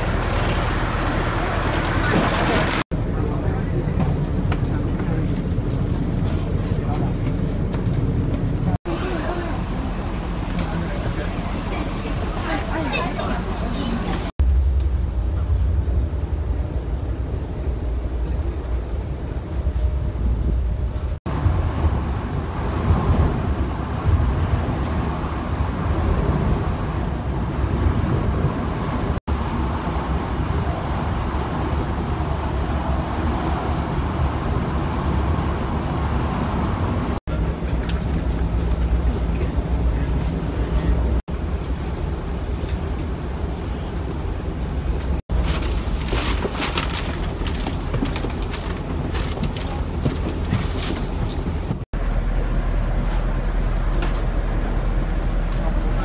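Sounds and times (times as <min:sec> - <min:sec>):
ferry engine rumble: 0:00.0 - 0:56.0.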